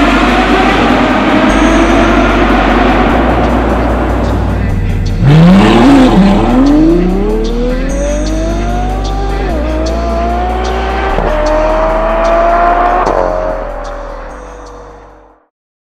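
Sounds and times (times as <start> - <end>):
car engine accelerating hard: 0.0 - 15.4.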